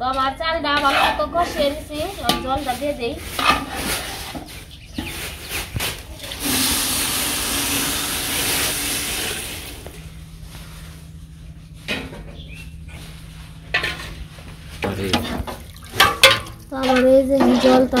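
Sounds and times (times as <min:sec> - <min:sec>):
water hissing in hot pot: 0:06.3 - 0:09.8.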